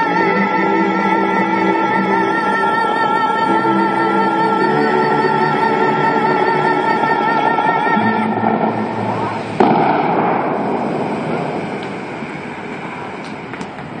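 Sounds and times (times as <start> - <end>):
fountain jets blasting: 0.0 - 14.0
fountain show music: 0.0 - 14.0.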